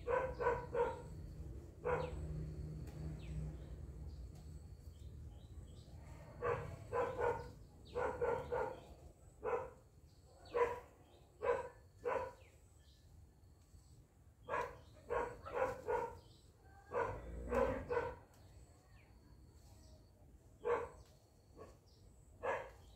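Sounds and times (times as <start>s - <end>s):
dog barking: 0.0s - 1.2s, 1.8s - 2.3s, 6.4s - 9.8s, 10.4s - 12.4s, 14.4s - 18.3s, 20.6s - 21.8s, 22.4s - 22.9s.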